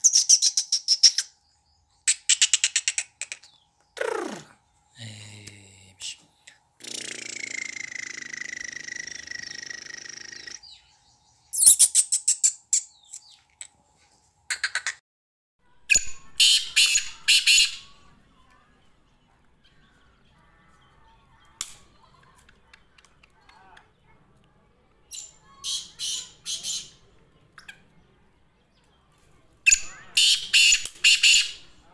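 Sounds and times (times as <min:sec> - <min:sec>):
bird harsh grating calls: 0:03.3 - 0:04.7, 0:06.8 - 0:10.8.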